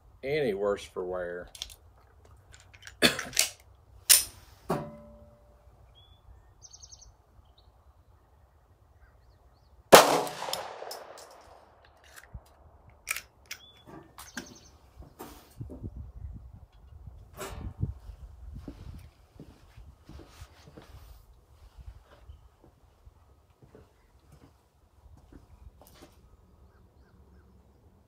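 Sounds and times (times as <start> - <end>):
metallic clicks of pistol handling: 1.5 - 4.4, 10.4 - 14.4
pistol gunshot with echo: 9.9 - 11.7.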